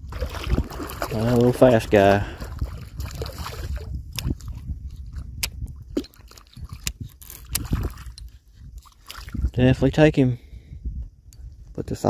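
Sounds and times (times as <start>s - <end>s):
low wind rumble: 0.0s - 12.0s
fishing gear clicking and knocking: 4.1s - 9.3s.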